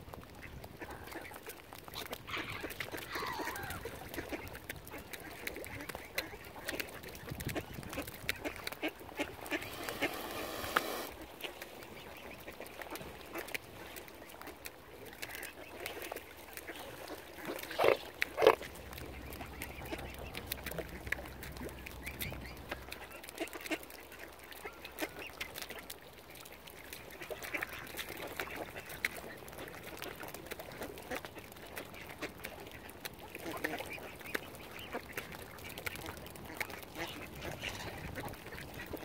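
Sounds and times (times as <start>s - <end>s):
ducks quacking: 2.3s - 13.4s, 15.3s - 25.8s, 30.7s - 39.0s.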